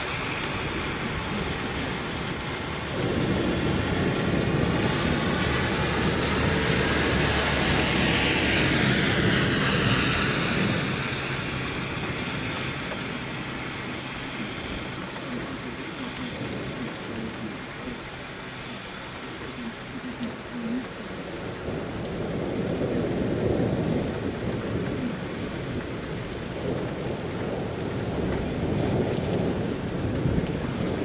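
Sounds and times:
vehicle engine hum: 0.0 - 21.1
steady rain: 0.0 - 31.0
tyres hissing on wet road: 0.0 - 31.0.

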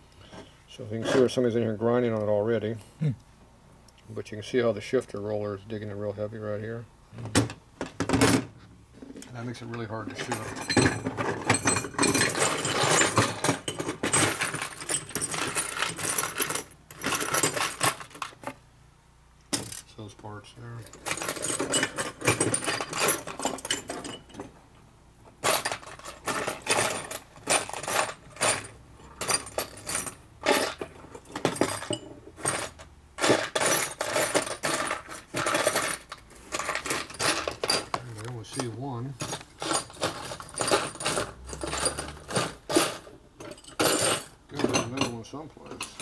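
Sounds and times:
metal parts clinking and rattling: 9.7 - 18.6, 19.5 - 20.0, 20.7 - 24.6, 25.3 - 46.0.

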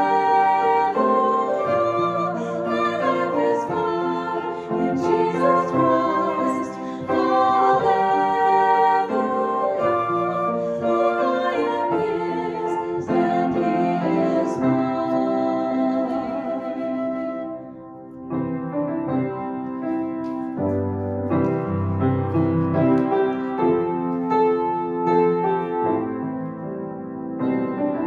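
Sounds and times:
flute playing melody: 0.0 - 18.4
piano accompaniment: 0.0 - 28.0.

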